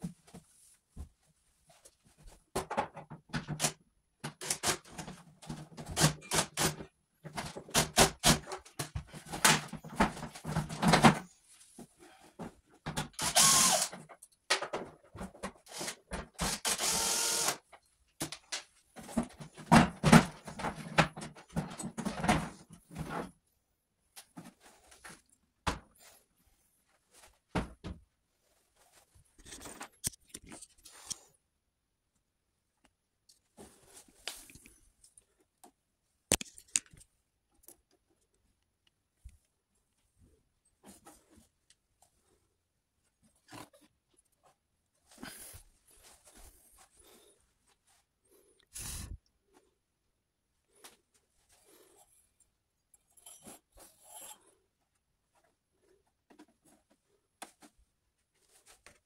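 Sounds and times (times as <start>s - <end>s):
plastic panels scraping and knocking: 2.5s - 11.4s, 18.2s - 23.4s
cordless drill running: 13.2s - 14.0s, 15.7s - 17.6s.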